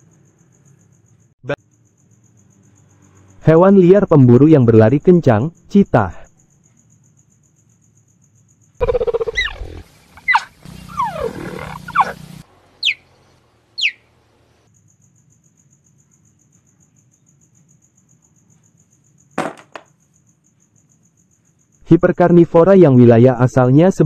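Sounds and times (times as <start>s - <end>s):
cheetah calling: 8.8s - 13.1s, 13.8s - 14.1s
noisy hiss: 8.8s - 14.7s.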